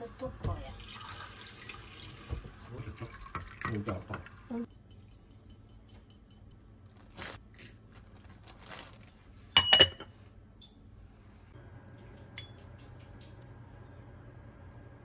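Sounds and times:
low steady hum: 0:02.7 - 0:15.0
metal clinking against ceramic pot: 0:09.6 - 0:10.8.

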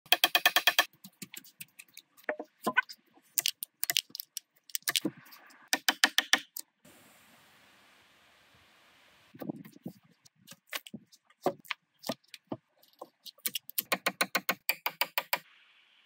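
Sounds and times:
hatchet chopping logs: 0:00.1 - 0:00.9, 0:05.7 - 0:06.6, 0:11.4 - 0:12.2, 0:13.4 - 0:15.4
faint steady hiss: 0:06.8 - 0:10.4.

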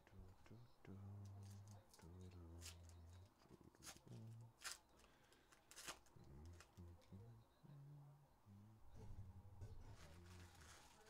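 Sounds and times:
foil wrapper crinkling: 0:01.4 - 0:06.8, 0:09.8 - 0:11.0.

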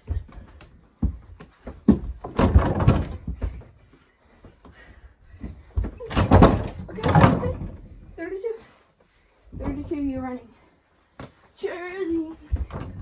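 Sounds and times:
door rattling: 0:06.1 - 0:07.9.

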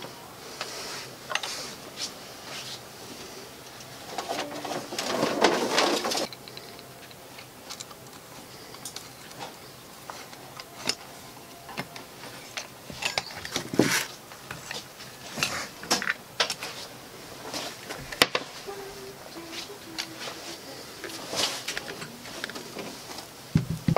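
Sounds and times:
rustle: 0:00.5 - 0:10.9
small metal clicks and knocks: 0:06.2 - 0:11.0.

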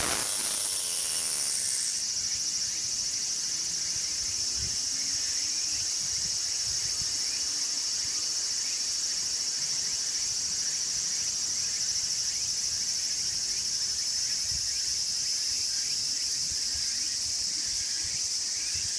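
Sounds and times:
cicada buzzing: 0:00.0 - 0:06.0.

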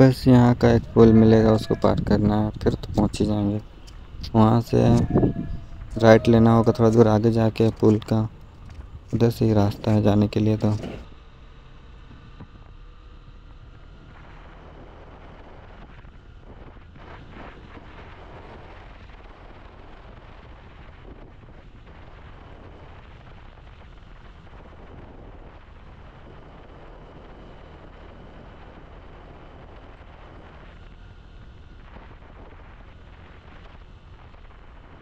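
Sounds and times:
wind buffeting microphone: 0:00.0 - 0:11.2
motorcycle engine: 0:00.0 - 0:35.0.

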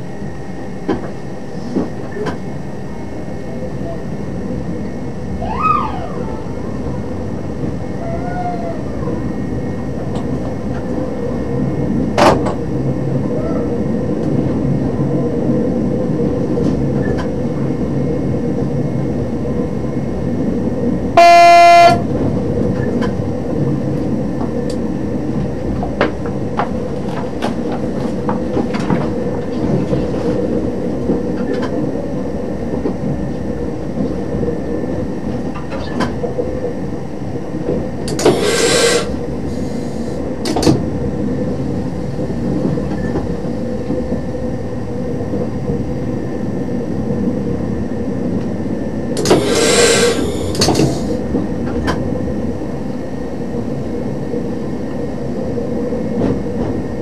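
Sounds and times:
train engine and wheels on rails: 0:00.0 - 0:57.0
train horn blast: 0:21.2 - 0:22.1.

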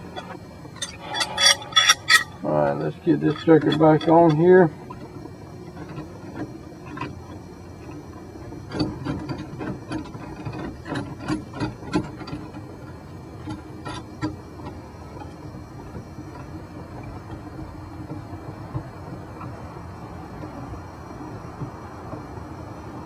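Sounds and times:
low steady hum: 0:00.0 - 0:10.7
small metal clicks and scrapes: 0:00.1 - 0:05.0.

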